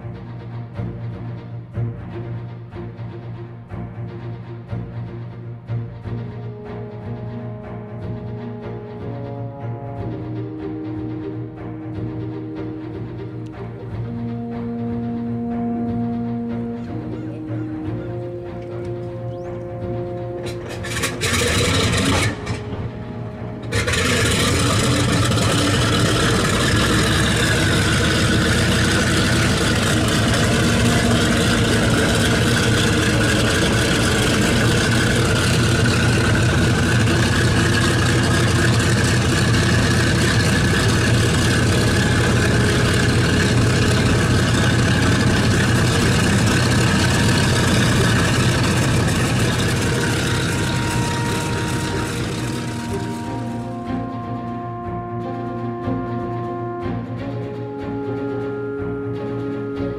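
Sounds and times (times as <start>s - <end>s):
radial aircraft engine starting: 6.2s - 59.9s.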